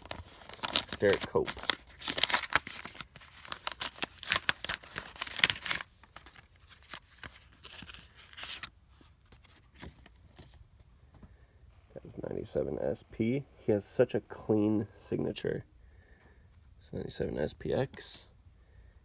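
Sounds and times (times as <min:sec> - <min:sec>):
paper envelope tearing: 0:00.0 - 0:08.7
paper rustling: 0:00.0 - 0:10.6.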